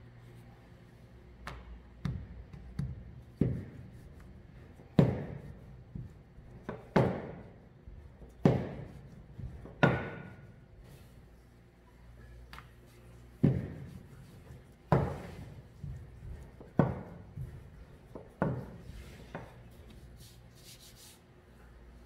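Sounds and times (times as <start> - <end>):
rolling pin knocking on countertop: 5.0 - 7.5, 8.4 - 10.4, 13.4 - 14.0, 14.9 - 19.5.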